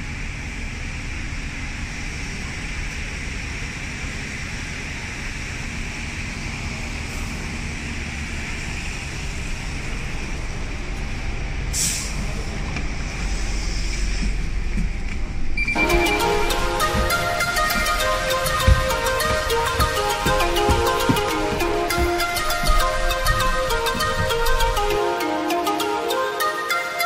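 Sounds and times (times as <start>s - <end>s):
bus diesel engine running: 0.0s - 26.6s
street traffic: 0.0s - 27.0s
compressed air hiss: 11.7s - 12.3s.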